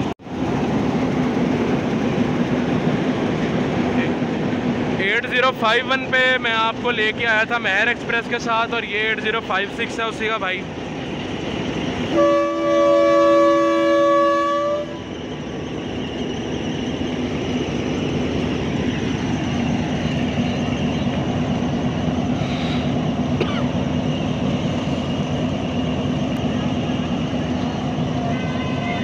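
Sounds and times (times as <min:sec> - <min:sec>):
diesel engine rumbling: 0:00.0 - 0:29.0
locomotive horn chord: 0:12.1 - 0:15.1, 0:28.1 - 0:29.0.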